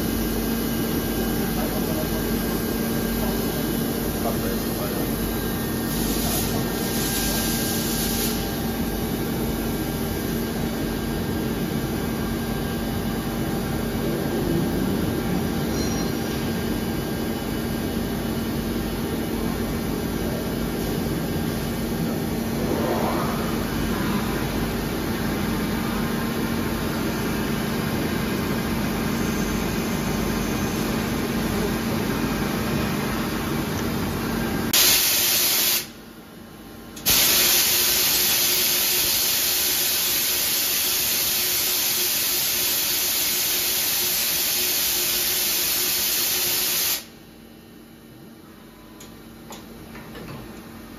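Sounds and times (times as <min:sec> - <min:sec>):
machining center hum: 0:00.0 - 0:50.9
hiss of air: 0:05.8 - 0:08.5, 0:34.8 - 0:36.0, 0:37.0 - 0:47.1
short rising whine: 0:20.0 - 0:27.2.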